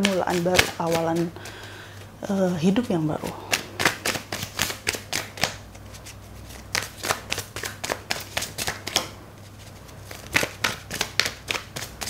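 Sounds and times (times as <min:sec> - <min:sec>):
cards being shuffled: 0:00.0 - 0:12.0.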